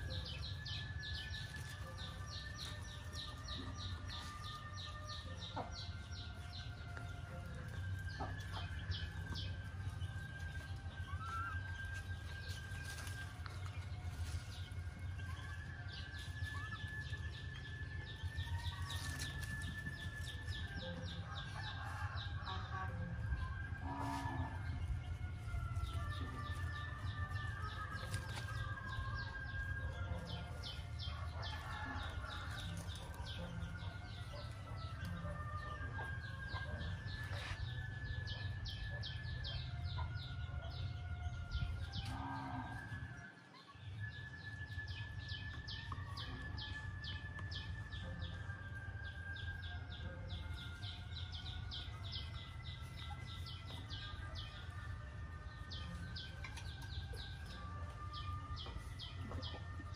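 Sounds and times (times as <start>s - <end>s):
drawn-out animal calls: 0.0s - 38.5s.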